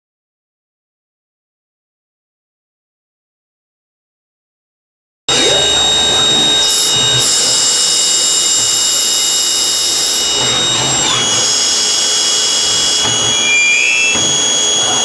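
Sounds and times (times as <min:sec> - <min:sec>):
hiss of cutting: 0:05.3 - 0:15.0
lathe high-pitched whine: 0:05.3 - 0:15.0.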